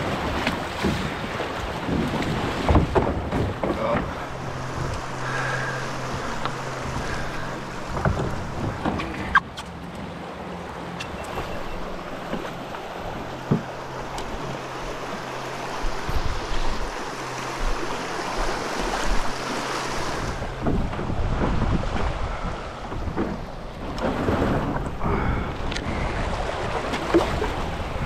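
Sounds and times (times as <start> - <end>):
wind buffeting microphone: 20.0 - 28.0.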